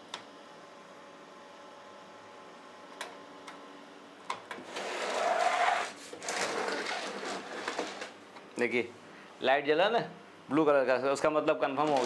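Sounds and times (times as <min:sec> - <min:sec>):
metal case scraping across desk: 0:04.6 - 0:08.2.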